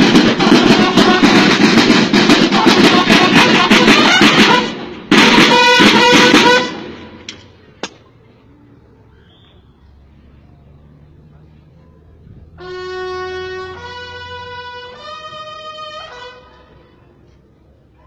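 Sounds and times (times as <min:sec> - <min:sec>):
parade drumming and music: 0:00.0 - 0:07.1.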